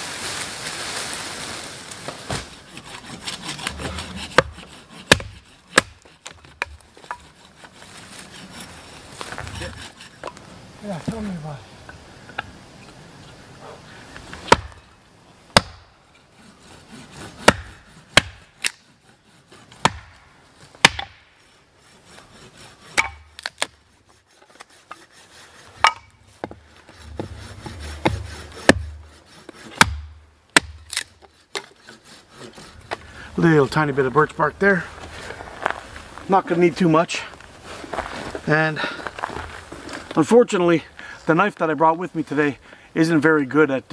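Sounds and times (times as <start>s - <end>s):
dull thud of wood falling: 2.0s - 2.6s
axe whacking wood: 4.4s - 7.2s, 14.4s - 14.8s, 15.5s - 15.9s, 17.4s - 18.8s, 19.8s - 20.2s, 20.8s - 21.2s, 23.0s - 23.8s, 28.0s - 29.0s, 29.8s - 31.7s.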